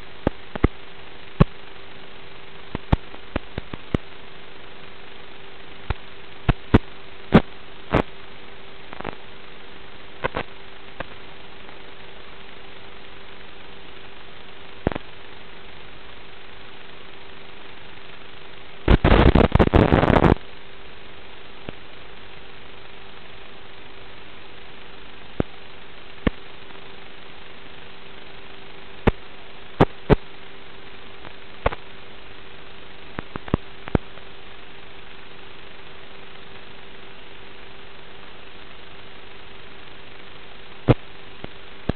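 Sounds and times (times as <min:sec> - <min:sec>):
sharp radio crackles and pops: 0:00.0 - 0:41.9
static hiss with low hum: 0:00.0 - 0:41.9
sharp clicks and pops: 0:00.2 - 0:00.8, 0:02.7 - 0:04.1, 0:14.8 - 0:15.1, 0:31.2 - 0:31.8, 0:33.2 - 0:34.1.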